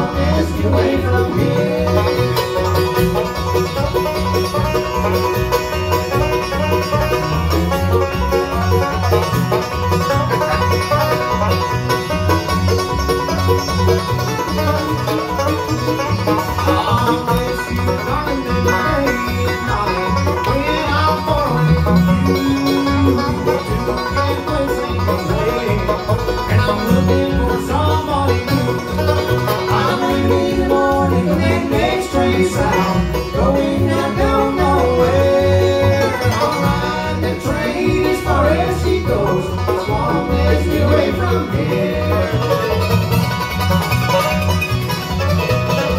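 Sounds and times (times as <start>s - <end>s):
acoustic guitar: 0.0s - 45.9s
banjo: 0.0s - 45.9s
mandolin: 0.0s - 45.9s
upright bass: 0.0s - 45.9s.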